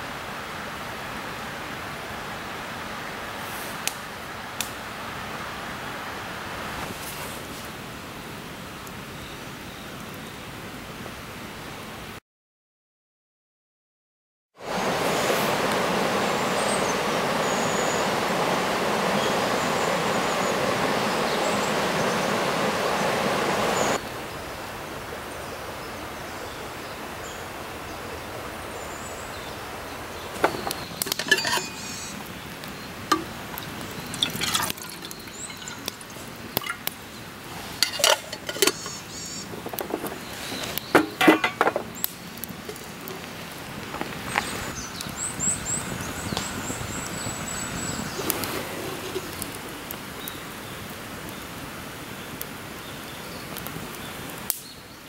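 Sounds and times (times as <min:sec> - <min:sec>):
river running over stones: 0:14.6 - 0:45.8.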